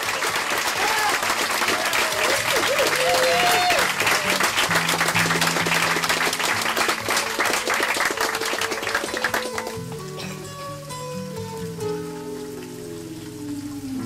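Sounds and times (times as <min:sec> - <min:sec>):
people clapping: 0:00.0 - 0:11.0
music with sustained notes: 0:04.5 - 0:14.0.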